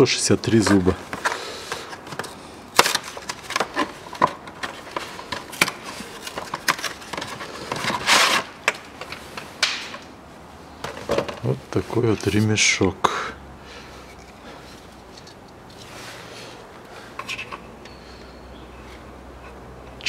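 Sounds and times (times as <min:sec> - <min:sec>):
clicks and knocks of tools: 0:17.1 - 0:18.0.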